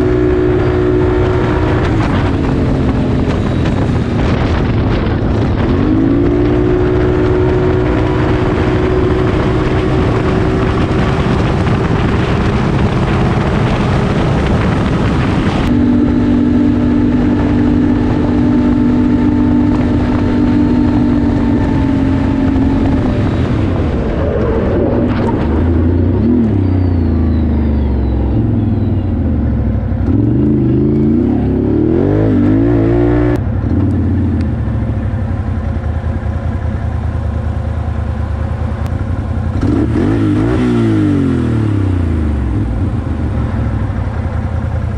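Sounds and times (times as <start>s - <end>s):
atv engine running hard: 0.0s - 44.9s.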